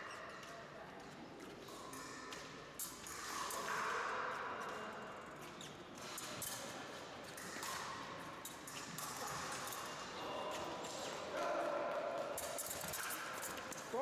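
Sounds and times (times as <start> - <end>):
steady hall noise: 6.2 - 14.0
fencing blades clicking: 12.4 - 14.0.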